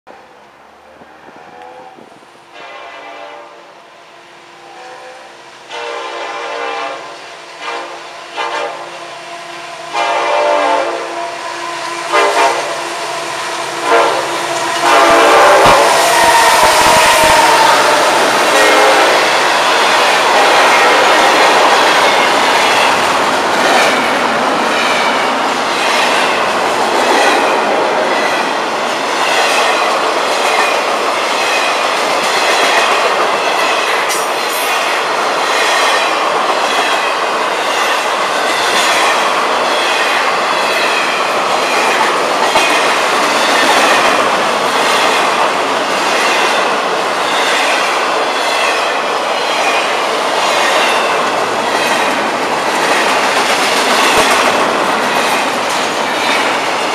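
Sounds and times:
freight train rolling past: 0:00.1 - 0:56.9
clickety-clack of wheels on rails: 0:12.0 - 0:56.9.

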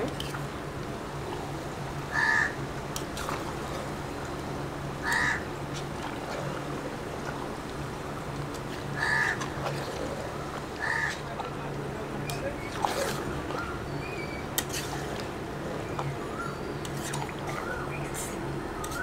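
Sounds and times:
low steady hum: 0:00.0 - 0:19.0
crow cawing: 0:02.1 - 0:02.6, 0:05.0 - 0:05.5, 0:09.0 - 0:09.4, 0:10.8 - 0:11.2.

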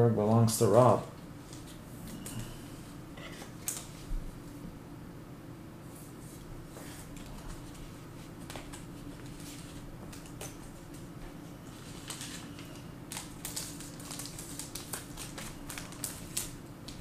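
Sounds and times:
steady low hum: 0:00.0 - 0:17.0
trading cards clicking and rustling: 0:11.9 - 0:17.0.

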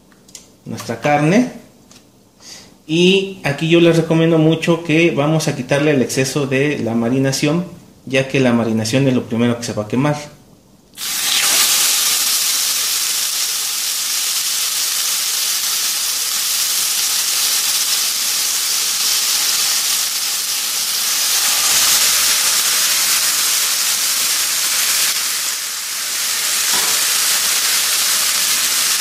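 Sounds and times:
chicken sizzling in hot oil: 0:11.0 - 0:29.0.

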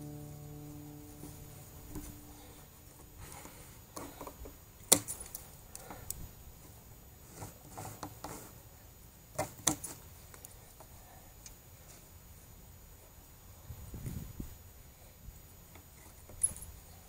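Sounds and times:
handling noise: 0:00.0 - 0:08.6, 0:09.3 - 0:10.9, 0:15.8 - 0:17.0.

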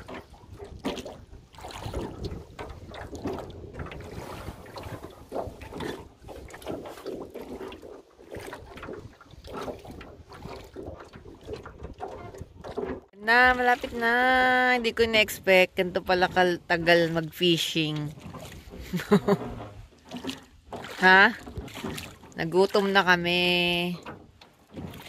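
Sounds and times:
wind buffeting microphone: 0:00.0 - 0:17.2
oars splashing: 0:00.0 - 0:25.0
water against boat hull: 0:00.0 - 0:25.0.

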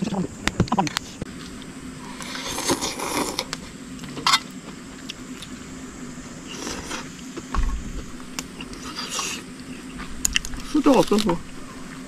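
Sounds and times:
person slurping soup: 0:02.1 - 0:03.5, 0:06.5 - 0:07.1, 0:08.6 - 0:09.5
low thump: 0:07.5 - 0:08.2.

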